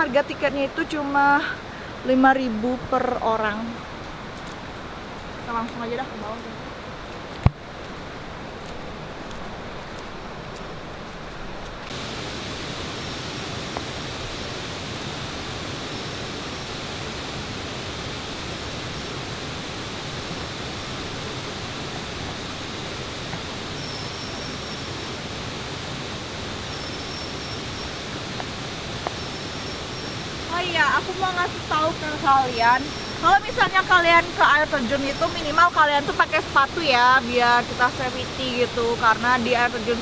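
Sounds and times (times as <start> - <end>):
water rushing: 0.0 - 40.0.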